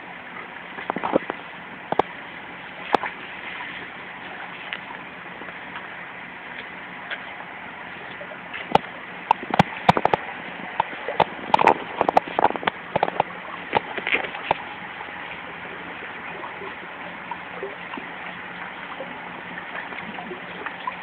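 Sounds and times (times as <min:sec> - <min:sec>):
water splashing in a tub: 0:06.5 - 0:21.0.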